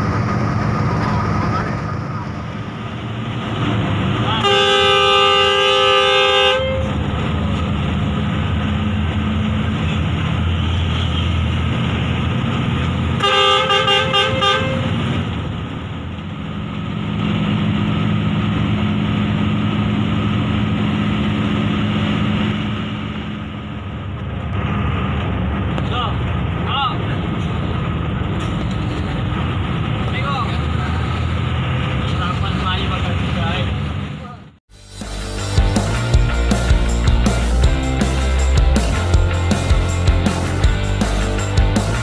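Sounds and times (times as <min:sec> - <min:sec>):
bus diesel engine running: 0:00.0 - 0:42.0
bus horn blast: 0:04.3 - 0:07.0, 0:13.2 - 0:15.1.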